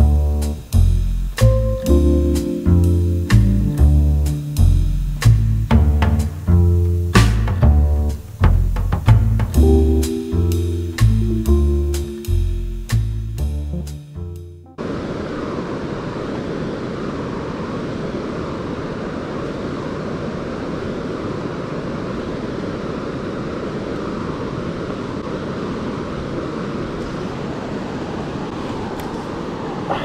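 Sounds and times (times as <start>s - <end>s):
river water rushing: 14.8s - 30.0s.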